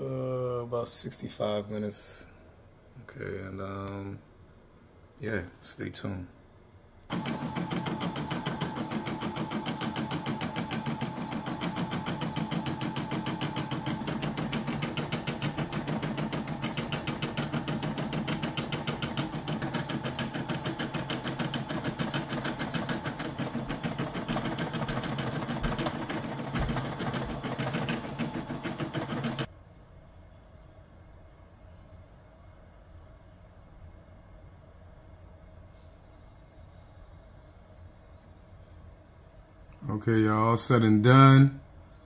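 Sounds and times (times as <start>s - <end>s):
embroidery machine stitching: 7.1s - 29.5s.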